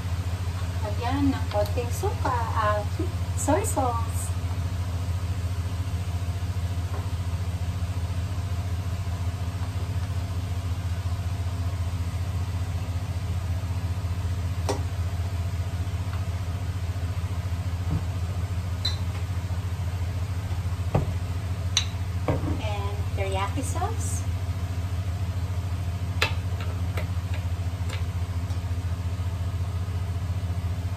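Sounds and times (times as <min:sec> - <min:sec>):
appliance fan hum: 0:00.0 - 0:30.9.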